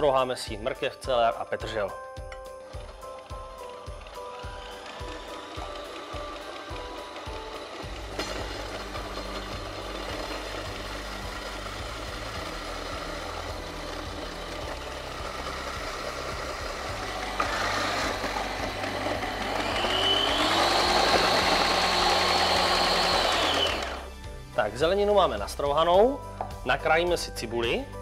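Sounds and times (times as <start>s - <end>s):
kitchen machine motor whining: 2.7s - 24.2s
vegetables being grated: 2.8s - 24.1s.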